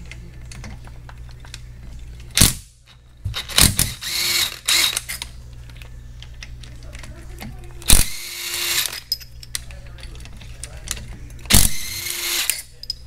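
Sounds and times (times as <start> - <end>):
cordless ratchet motor whirring: 3.4 - 5.2, 7.9 - 9.1, 11.5 - 12.7.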